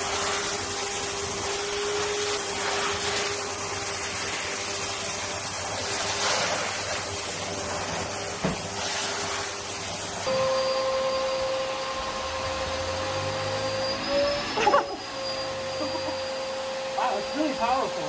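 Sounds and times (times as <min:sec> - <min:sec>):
vacuum cleaner running: 0:00.0 - 0:18.0.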